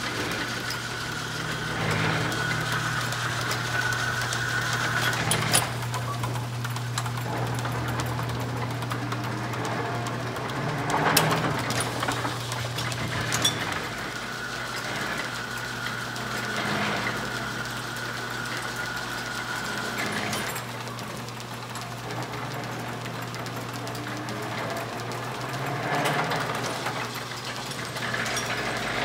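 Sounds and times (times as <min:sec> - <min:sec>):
thin steady whine: 0:00.0 - 0:06.4
metal planer humming and clattering: 0:00.0 - 0:29.0.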